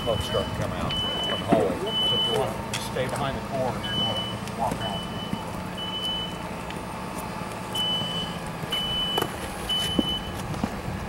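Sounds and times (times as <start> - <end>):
reversing alarm beeps: 0.0 - 2.6, 3.8 - 6.4, 7.7 - 10.4
vehicle engine running: 0.0 - 11.0.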